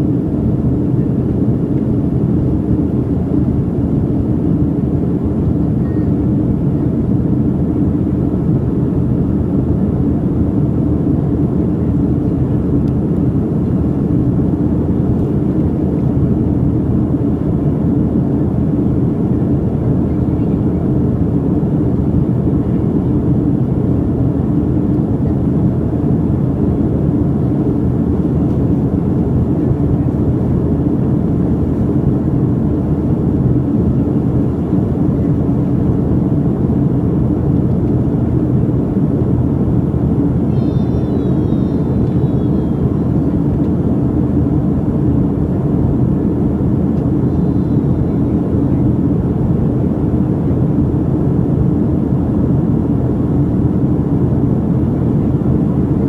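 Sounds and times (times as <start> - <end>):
airliner cabin engine rush: 0.0 - 56.0
faint hum: 0.0 - 56.0.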